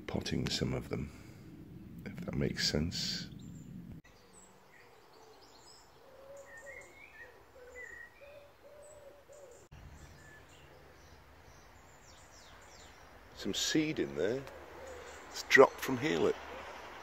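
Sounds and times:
small birds chirping: 0:00.0 - 0:17.0
pigeon cooing: 0:06.0 - 0:09.7, 0:14.4 - 0:15.4.

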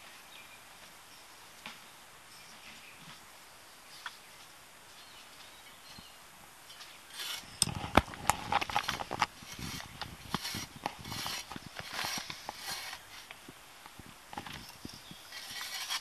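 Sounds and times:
tool scraping and clicking in soil: 0:06.7 - 0:16.0.

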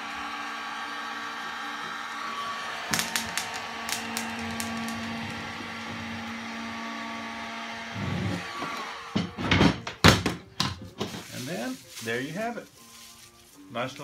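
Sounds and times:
heat gun blowing: 0:00.0 - 0:09.7
bubble wrap popping: 0:02.9 - 0:05.2.

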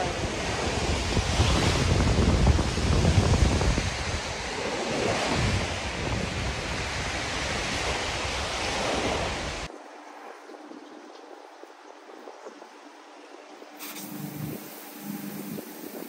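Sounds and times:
surf washing onto beach: 0:00.0 - 0:09.7
wind buffeting microphone: 0:00.0 - 0:16.0.

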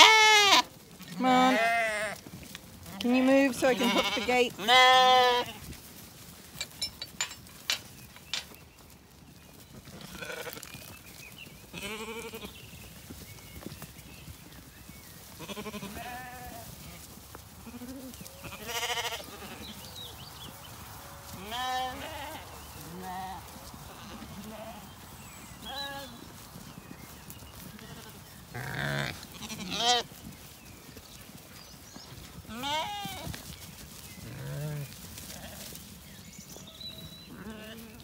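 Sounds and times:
sheep bleating: 0:00.0 - 0:02.2, 0:03.6 - 0:05.6, 0:10.1 - 0:10.6, 0:11.8 - 0:12.5, 0:15.4 - 0:16.6, 0:17.6 - 0:19.8, 0:21.3 - 0:23.4, 0:27.7 - 0:30.0, 0:32.5 - 0:33.3, 0:37.3 - 0:38.0.

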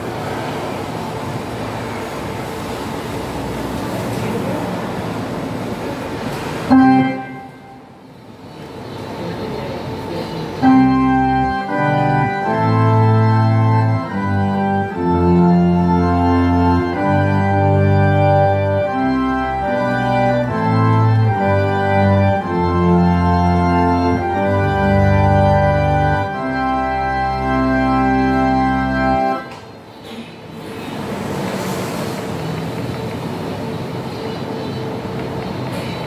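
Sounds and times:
organ chords over bass line: 0:06.7 - 0:08.0, 0:10.6 - 0:29.9.

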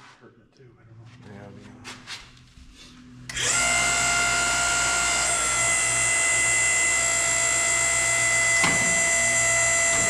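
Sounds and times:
hydraulic pump whining: 0:03.3 - 0:10.0.

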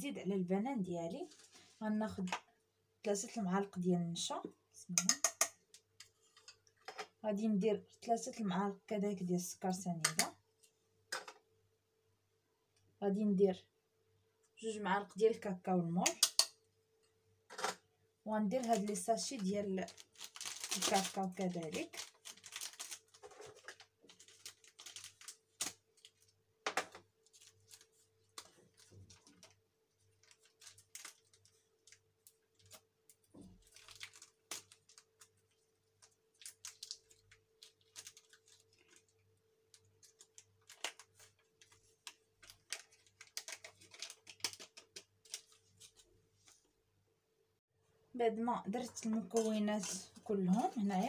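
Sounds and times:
sachets rustling and crinkling: 0:18.4 - 0:46.1.

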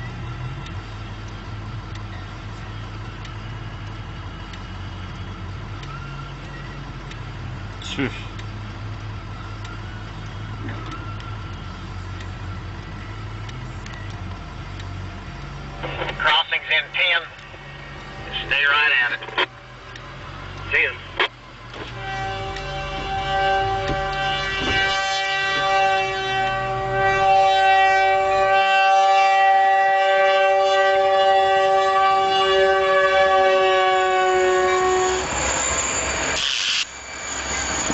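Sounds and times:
low rumble: 0:00.0 - 0:28.5
diesel engines humming: 0:00.0 - 0:37.9
locomotive air horn: 0:21.8 - 0:37.9.

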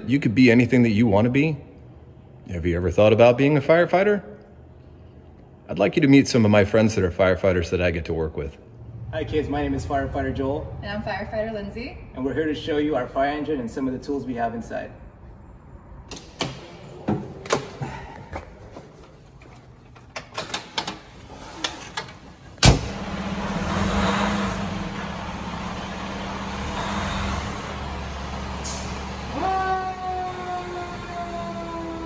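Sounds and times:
diesel engine idling: 0:22.8 - 0:32.0.

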